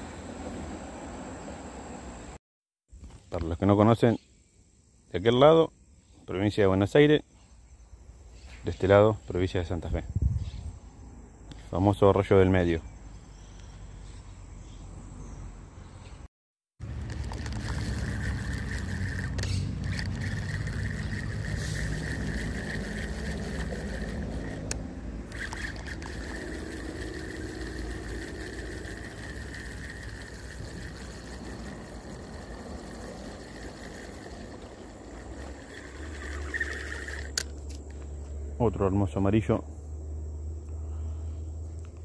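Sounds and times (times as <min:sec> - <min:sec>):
crickets chirring: 0:00.0 - 0:02.4, 0:03.0 - 0:15.7, 0:16.8 - 0:42.0
fishing reel being cranked: 0:16.8 - 0:37.5.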